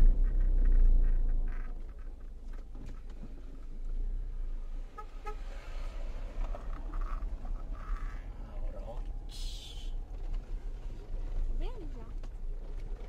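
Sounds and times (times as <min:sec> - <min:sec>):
car driving on rough road: 0:00.0 - 0:13.0
car horn toots: 0:04.9 - 0:05.5.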